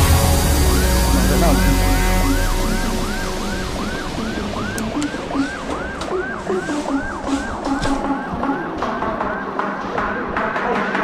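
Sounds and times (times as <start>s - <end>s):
pulsing bass note: 0.0s - 7.3s
siren-like synth wailing: 0.0s - 9.7s
sharp percussion hits: 0.0s - 11.0s.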